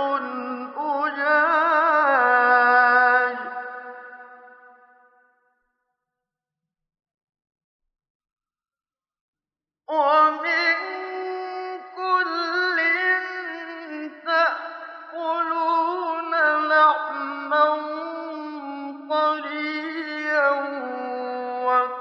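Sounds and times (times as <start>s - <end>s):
man chanting melodically: 0.0s - 4.3s, 9.9s - 22.0s.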